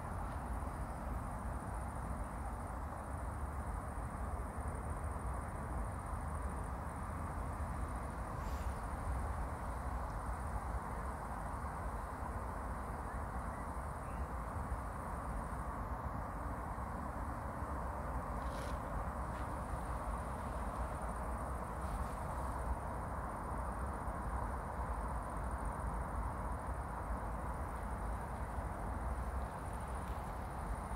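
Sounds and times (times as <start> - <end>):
low rumble and hiss: 0.0 - 30.9
faint high buzz: 8.1 - 11.8.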